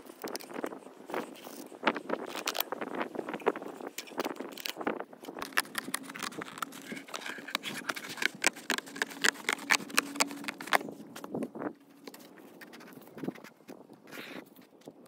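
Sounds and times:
cardboard being cut: 5.4 - 11.0.

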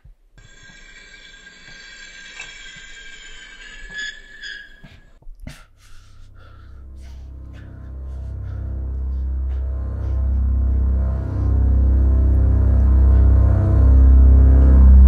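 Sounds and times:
high-pitched screech: 0.4 - 5.1
low steady drone: 5.7 - 15.0.

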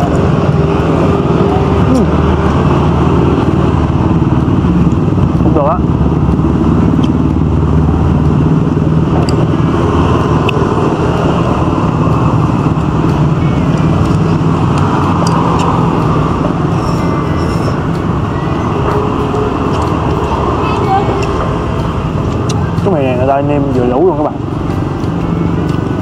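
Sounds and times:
road traffic hum: 0.0 - 26.0.

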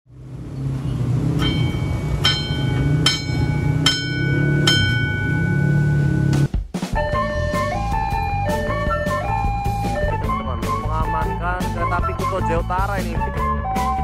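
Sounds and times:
steady low rumble: 0.1 - 6.5
level crossing bell ringing: 1.4 - 6.3.

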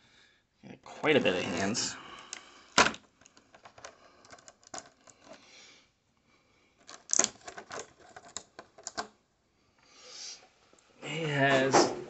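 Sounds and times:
plastic blister tray crinkling: 6.8 - 9.2.

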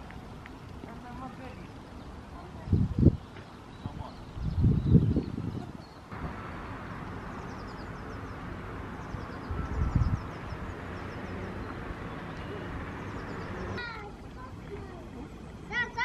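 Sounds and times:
birds chirping: 0.3 - 16.0
steady background hiss: 5.8 - 16.0.

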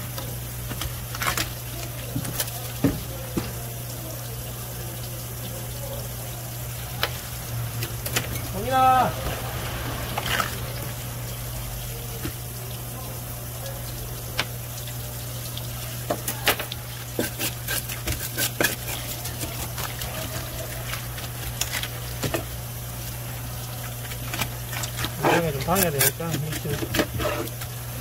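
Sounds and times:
water running from a tap: 0.0 - 28.0.

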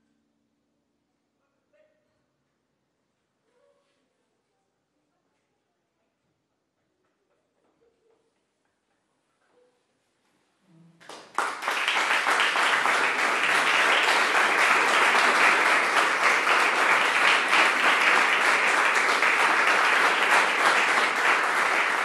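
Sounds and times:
audience applauding: 11.0 - 22.0.

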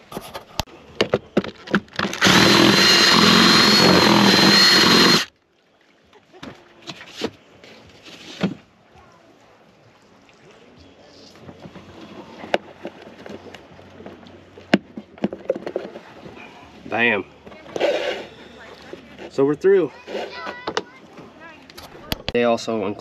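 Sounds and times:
power drill boring into plastic: 2.0 - 5.3.

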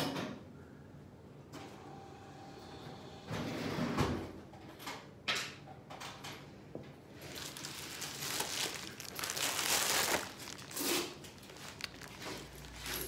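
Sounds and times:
crinkling handling noise: 7.0 - 13.0.

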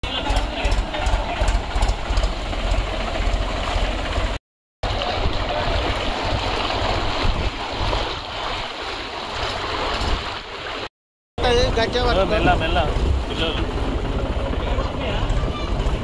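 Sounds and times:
diesel tractor engine running: 0.0 - 4.4
water rushing and sloshing: 0.0 - 16.0.

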